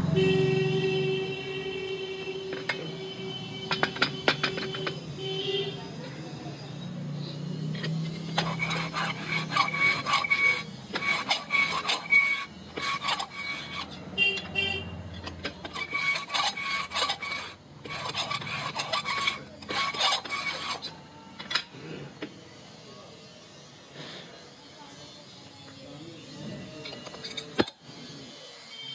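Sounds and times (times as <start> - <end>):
valve seat cutter scraping metal: 2.4 - 5.2, 6.6 - 28.9.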